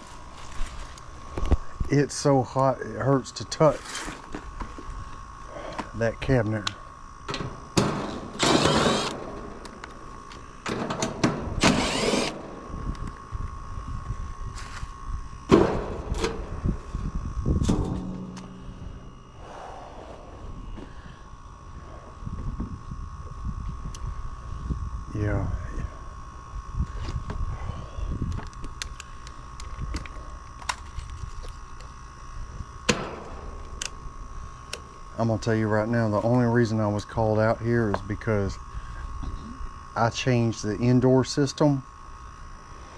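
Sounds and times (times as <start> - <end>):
low wind rumble: 7.0 - 30.5
impact driver whirring: 7.3 - 13.8
steady high tone: 11.6 - 22.4.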